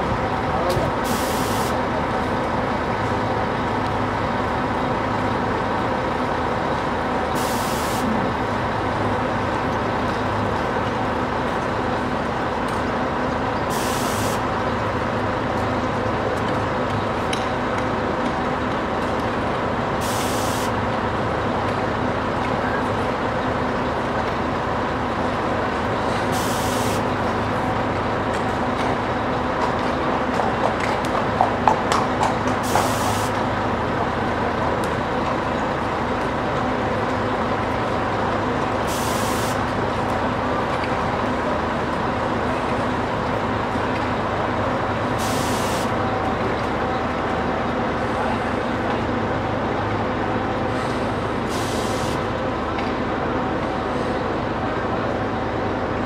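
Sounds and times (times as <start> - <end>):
street noise: 0.0 - 56.0
vehicle engine humming: 0.0 - 56.0
short hiss of air: 1.0 - 1.8, 7.4 - 8.0, 13.7 - 14.4, 20.0 - 20.7, 26.4 - 27.0, 38.9 - 39.6, 45.2 - 45.9, 50.8 - 52.2.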